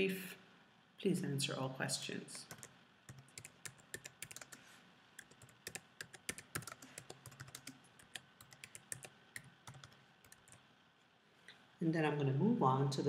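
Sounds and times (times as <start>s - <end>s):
typing on computer keyboard: 2.5s - 4.6s, 5.2s - 10.6s.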